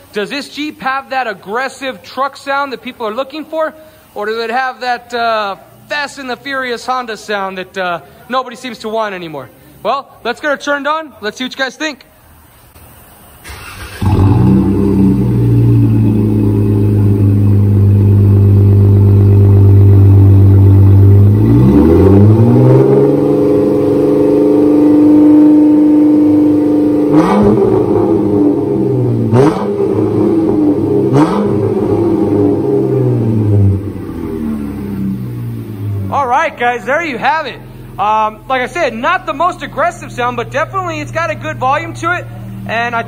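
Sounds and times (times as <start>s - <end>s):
car engine exhaust revving: 13.5s - 43.0s.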